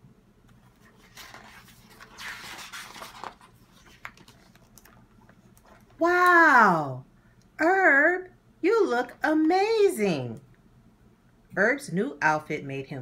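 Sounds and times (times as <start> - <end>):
paper page turning: 0.6 - 6.0.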